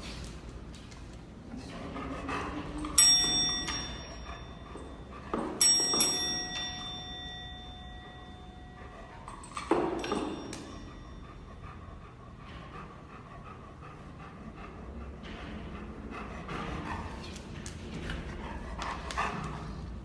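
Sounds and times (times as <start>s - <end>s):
service desk bell ringing: 2.9s - 11.5s.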